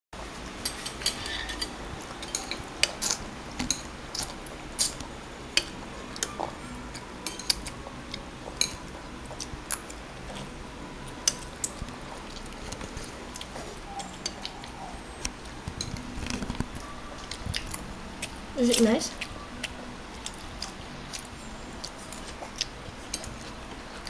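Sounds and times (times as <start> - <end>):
cutlery scraping against bowl: 0.6 - 3.9.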